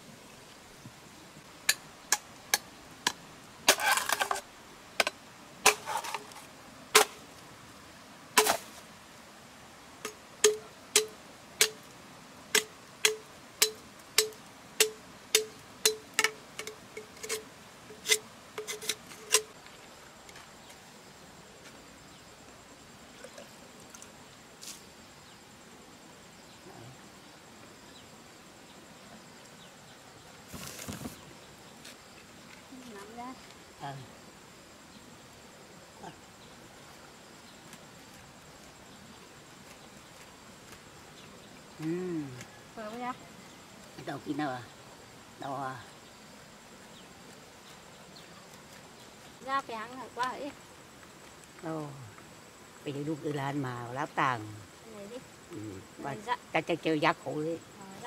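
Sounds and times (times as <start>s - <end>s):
scraping sounds: 3.7s - 4.4s, 5.7s - 7.1s, 16.6s - 19.6s.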